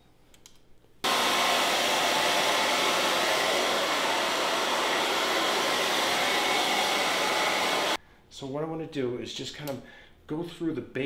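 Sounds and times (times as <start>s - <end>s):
hair dryer blowing: 1.0s - 8.0s.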